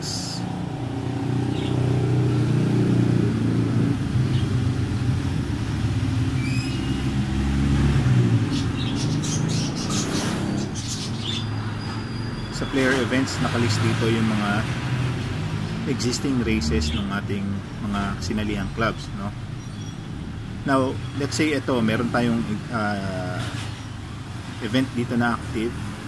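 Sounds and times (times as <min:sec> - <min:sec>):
bird chirping: 0:01.4 - 0:02.0, 0:06.3 - 0:07.4, 0:08.3 - 0:13.1, 0:18.4 - 0:22.7.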